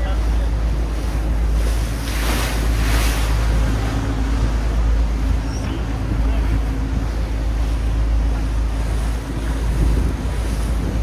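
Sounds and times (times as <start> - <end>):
boat engine rumble: 0.0 - 11.0
water rushing past hull: 0.0 - 11.0
wind buffeting microphone: 0.5 - 11.0.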